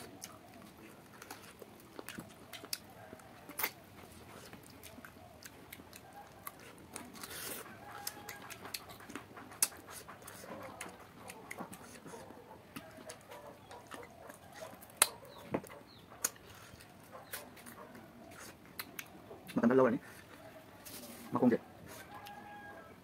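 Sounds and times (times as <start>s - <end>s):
wet chewing and smacking: 0.0s - 22.9s
sharp clicks of fingers tearing: 18.7s - 19.6s.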